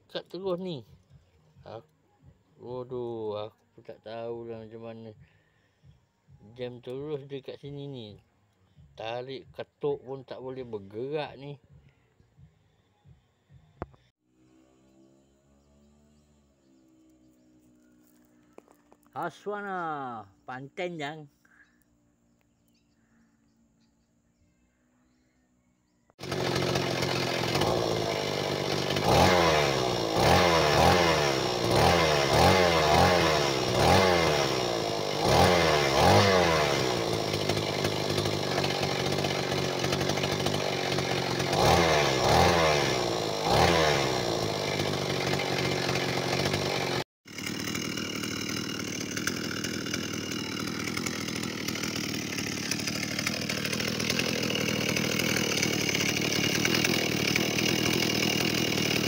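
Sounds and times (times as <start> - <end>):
two-stroke engine revving: 26.2 - 59.0.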